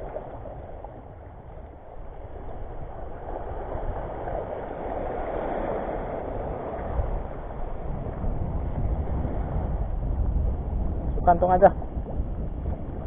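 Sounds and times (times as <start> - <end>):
waves splashing over rocks: 0.0 - 13.0
wind rumbling on microphone: 0.0 - 13.0.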